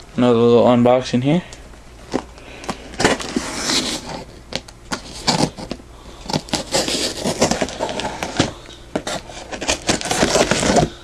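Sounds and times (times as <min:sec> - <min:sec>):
hands tapping and scraping cardboard: 0:02.1 - 0:10.9
packing tape crackling: 0:02.1 - 0:11.0.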